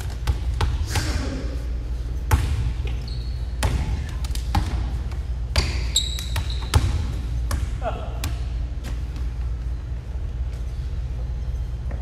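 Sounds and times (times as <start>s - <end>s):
basketball bouncing on wooden floor: 3.6s - 8.4s.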